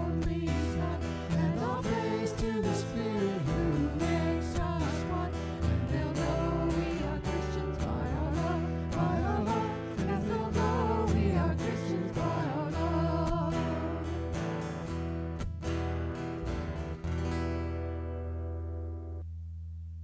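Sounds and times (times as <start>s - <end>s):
person singing: 0.0s - 14.3s
guitar accompaniment: 0.0s - 19.3s.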